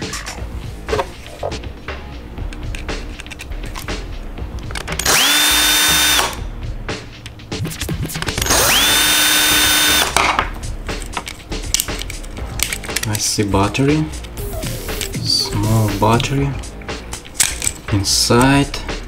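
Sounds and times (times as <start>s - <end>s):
handling clicks and knocks: 2.4s - 5.0s, 10.2s - 13.2s, 17.3s - 18.0s
electric screwdriver whining: 5.0s - 6.4s, 8.4s - 10.1s.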